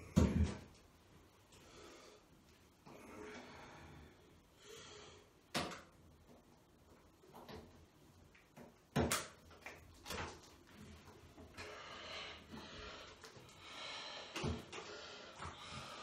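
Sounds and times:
heavy breathing: 11.6 - 16.0.

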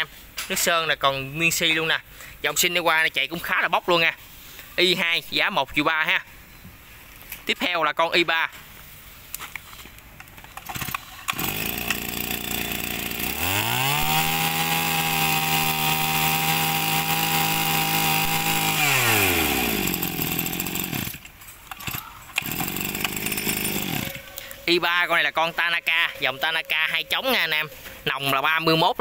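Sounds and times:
brush cutter engine revving: 10.6 - 25.3.

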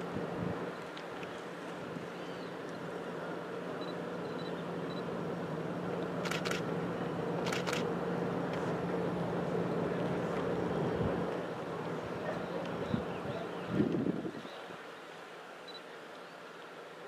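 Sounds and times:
low engine hum: 0.0 - 14.2
wind and water noise: 0.0 - 17.0.

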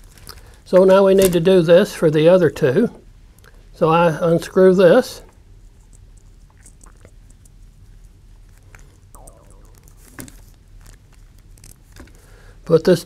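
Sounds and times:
small clicks and scratches: 5.3 - 9.0.

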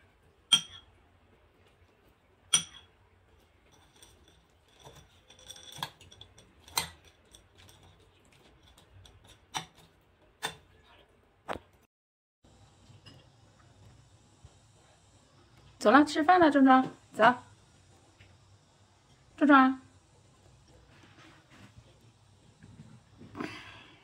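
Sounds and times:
metal spoon clinking on ceramic bowl: 0.5 - 0.9, 2.5 - 2.9, 3.7 - 8.0.

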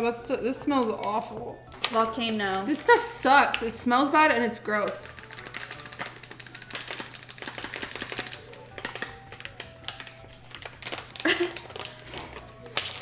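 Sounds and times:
plastic bag crinkling: 1.7 - 3.7, 4.9 - 13.0.

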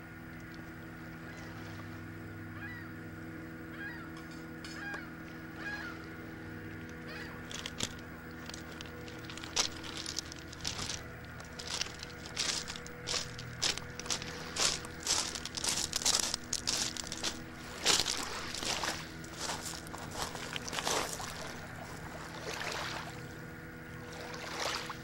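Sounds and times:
footsteps crunching on pebbles: 6.8 - 22.0.

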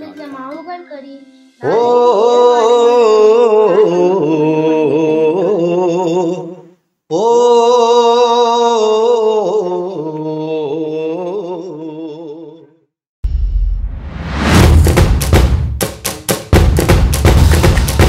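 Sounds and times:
person singing a slow chant: 1.6 - 12.8
loud drum hit: 13.2 - 18.0.

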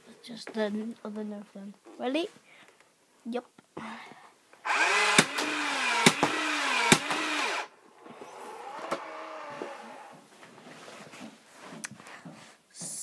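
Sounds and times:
toy blaster motor whirring: 4.6 - 7.7.

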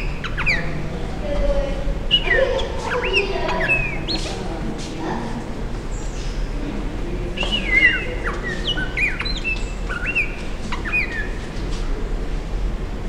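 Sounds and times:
crow calling whistled notes: 7.4 - 11.4.

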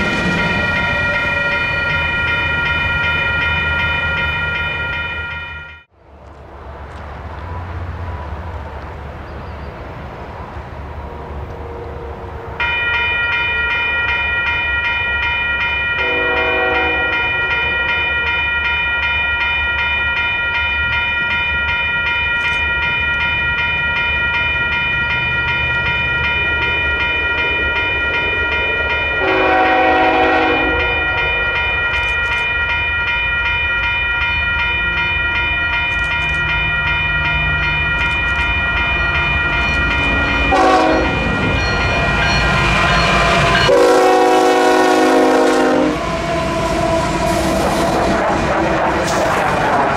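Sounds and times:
railroad crossing bell ringing: 0.0 - 5.9, 11.5 - 48.0
train rumble: 0.0 - 49.9
train horn blasts: 16.0 - 17.8, 29.2 - 31.4, 40.4 - 41.3, 43.4 - 47.8.

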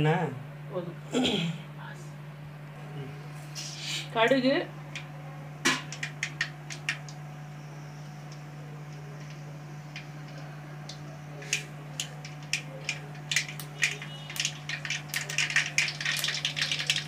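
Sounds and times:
mustard seeds spluttering in oil: 8.2 - 17.0.

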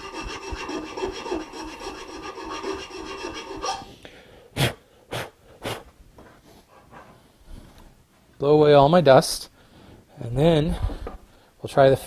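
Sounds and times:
file scraping wood: 0.0 - 3.9.

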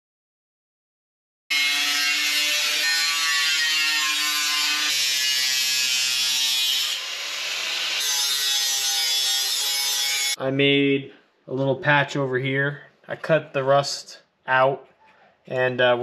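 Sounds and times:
angle grinder grinding steel: 1.5 - 10.4.

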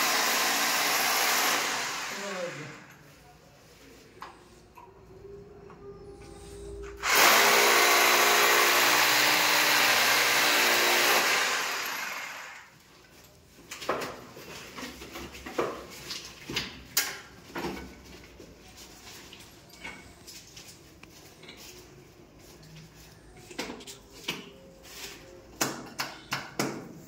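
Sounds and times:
electric drill running: 0.0 - 2.8, 7.0 - 12.7.

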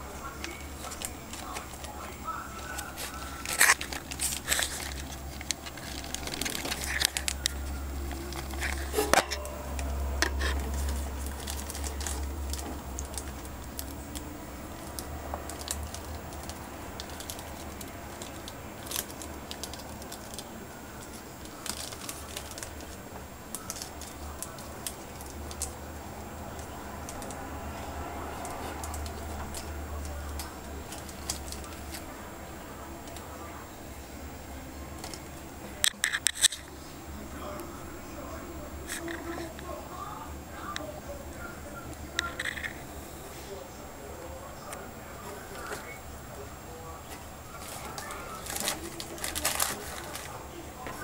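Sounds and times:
tissue crinkling and tearing: 0.4 - 25.8, 47.0 - 51.0.

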